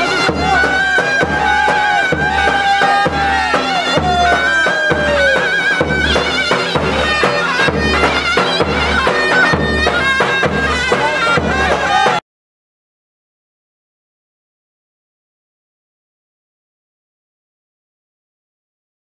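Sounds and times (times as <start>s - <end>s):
bass drum beat: 0.0s - 12.2s
shrill reed-pipe melody: 0.0s - 12.2s.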